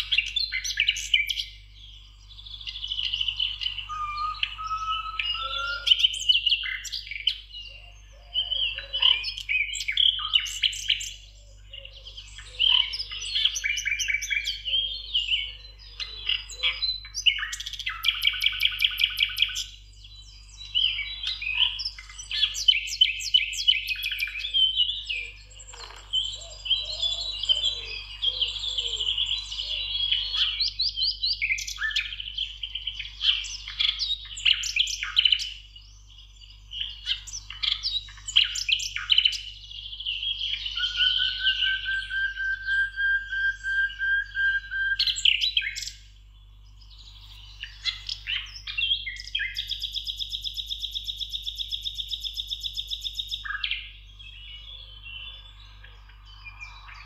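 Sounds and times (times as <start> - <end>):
songbirds chorus: 0.0 - 57.0
fast bird trill: 2.9 - 7.1.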